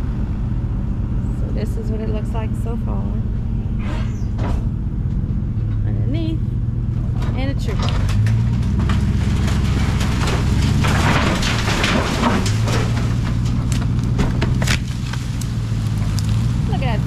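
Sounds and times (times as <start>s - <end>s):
four-wheeler engine under load: 0.0s - 17.0s
branches and leaves scraping: 7.4s - 17.0s.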